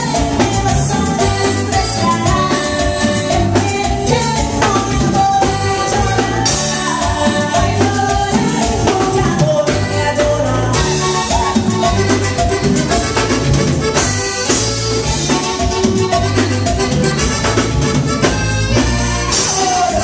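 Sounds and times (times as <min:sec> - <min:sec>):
woman singing: 0:00.0 - 0:12.0, 0:18.9 - 0:20.0
drum kit beat: 0:00.0 - 0:20.0.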